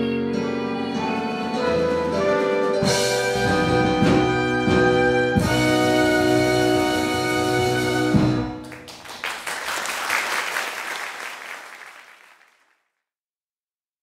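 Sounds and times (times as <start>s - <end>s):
audience applause: 8.5s - 12.8s.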